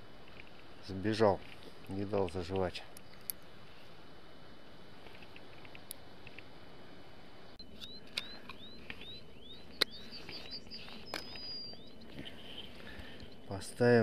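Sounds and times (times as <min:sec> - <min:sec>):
bird whistling rising notes: 0:07.6 - 0:12.8.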